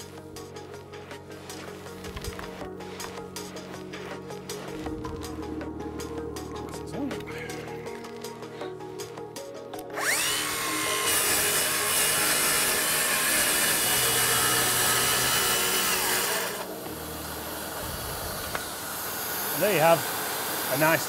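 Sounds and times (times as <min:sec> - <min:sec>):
circular saw whine: 0:09.9 - 0:21.0
saw cutting chipboard: 0:10.0 - 0:21.0.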